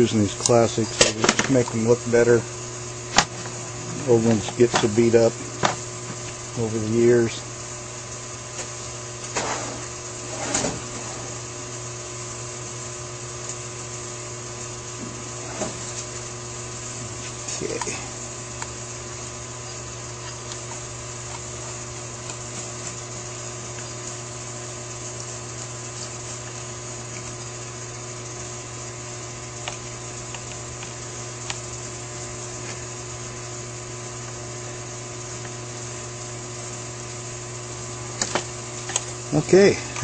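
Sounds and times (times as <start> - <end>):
steady electrical hum: 0.0 - 40.0.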